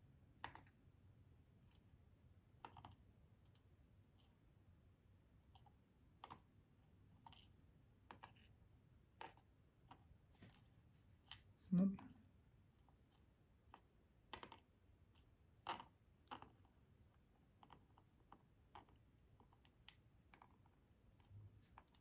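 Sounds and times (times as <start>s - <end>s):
faint small clicks and taps: 0.4s - 0.8s, 2.5s - 4.4s, 5.5s - 6.6s, 7.2s - 11.6s, 12.8s - 22.0s.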